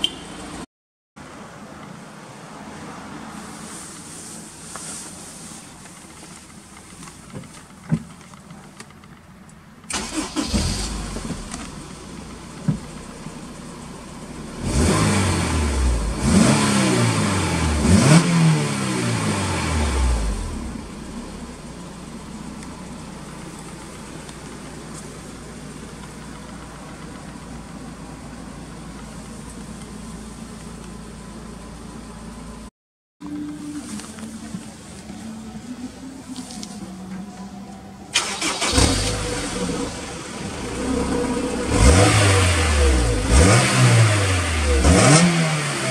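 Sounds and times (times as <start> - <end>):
car engine starting and revving: 9.9 - 32.6, 38.0 - 45.9.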